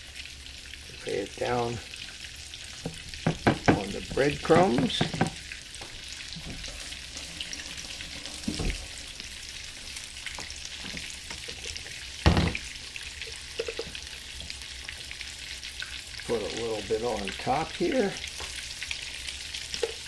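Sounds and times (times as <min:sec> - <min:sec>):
fish sizzling in grease: 0:00.0 - 0:20.0
dull knock: 0:03.2 - 0:03.9
thump: 0:12.2 - 0:12.6.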